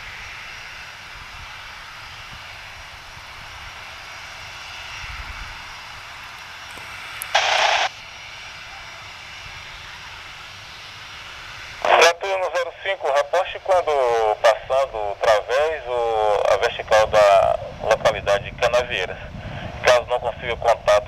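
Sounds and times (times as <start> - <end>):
jet engines running: 0.0 - 21.0
loud burst of hiss: 6.6 - 8.1.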